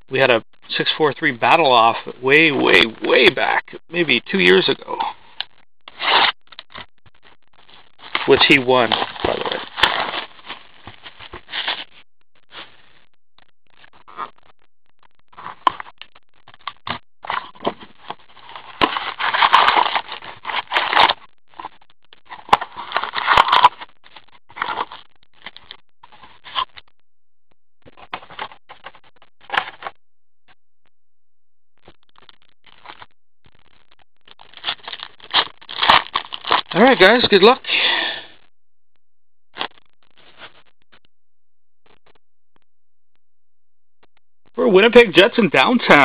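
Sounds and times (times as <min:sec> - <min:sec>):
plastic packs crinkling: 0:08.0 - 0:11.9, 0:18.4 - 0:21.2, 0:34.5 - 0:36.8.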